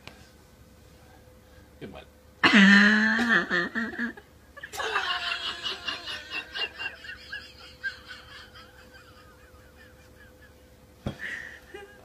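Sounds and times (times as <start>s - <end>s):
person laughing: 2.4s - 12.0s.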